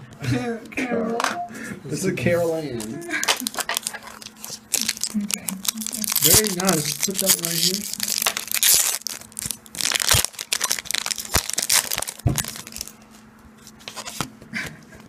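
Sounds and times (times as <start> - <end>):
foil wrappers crinkling: 2.8 - 14.2.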